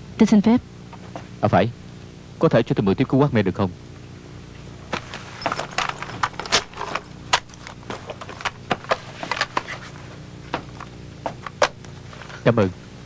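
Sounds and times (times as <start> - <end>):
low steady hum: 0.0 - 13.0
device handling clicks and rustles: 4.9 - 12.5.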